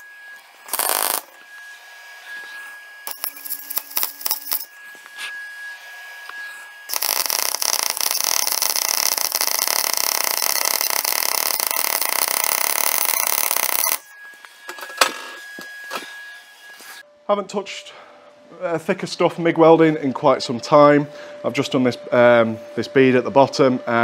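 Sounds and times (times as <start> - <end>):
welder arc crackling: 0.6 - 1.4, 6.9 - 14.0.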